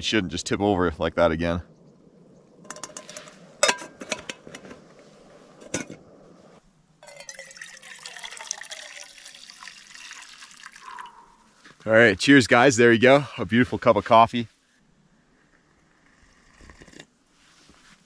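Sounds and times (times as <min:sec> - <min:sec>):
coffee pouring into metal pot: 0:07.0 - 0:11.1.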